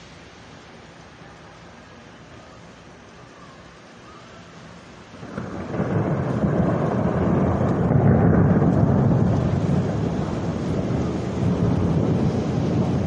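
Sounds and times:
thunder rumbling: 5.1s - 13.0s.

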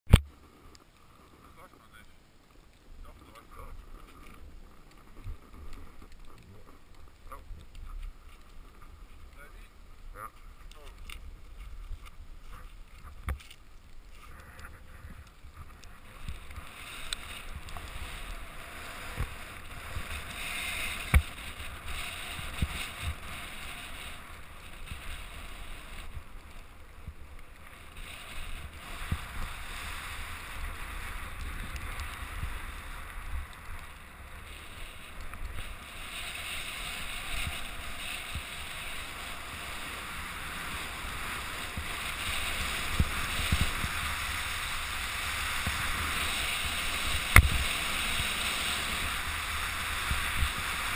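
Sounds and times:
hiss of sliding on snow: 3.0s - 50.9s
wind buffeting microphone: 35.0s - 50.9s.

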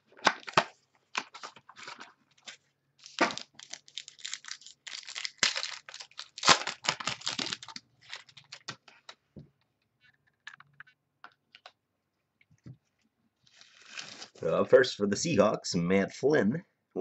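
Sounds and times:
wrapper and cardboard ripping: 0.1s - 9.1s, 13.5s - 14.4s.

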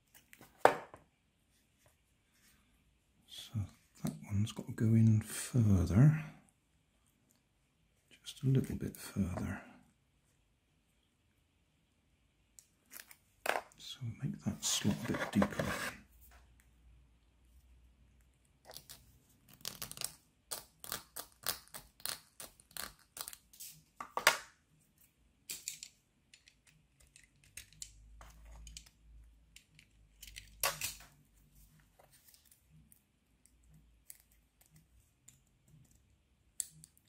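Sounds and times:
metal file scraping plastic: 14.9s - 16.0s
plastic pieces clicking: 25.5s - 31.0s.

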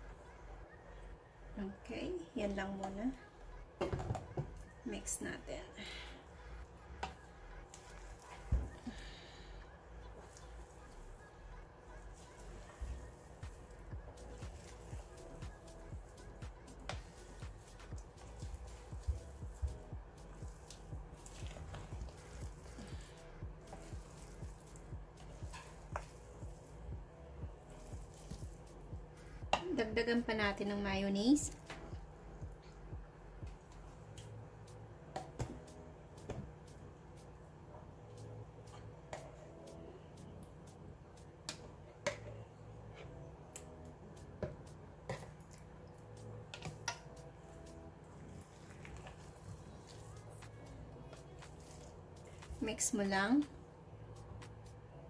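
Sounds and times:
wet squelching of stirred salad: 6.6s - 9.4s, 10.1s - 11.2s, 12.0s - 26.9s, 27.6s - 28.9s, 45.1s - 53.1s.

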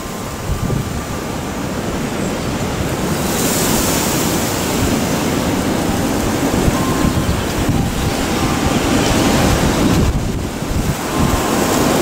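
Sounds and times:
wind buffeting microphone: 0.0s - 12.0s
metal wind chime ringing: 4.6s - 12.0s.

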